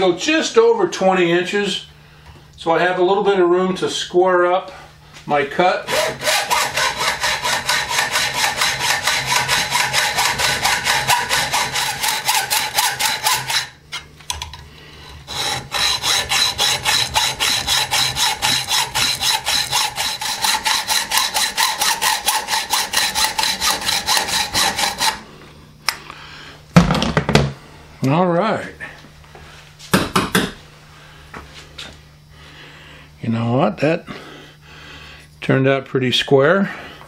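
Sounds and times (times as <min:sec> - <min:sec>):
hacksaw cutting metal: 0:05.9 - 0:13.8, 0:15.2 - 0:25.2.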